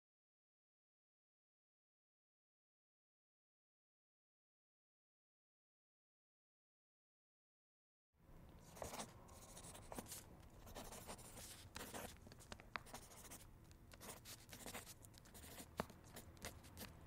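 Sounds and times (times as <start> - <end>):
pen scratching on paper: 8.6 - 17.0.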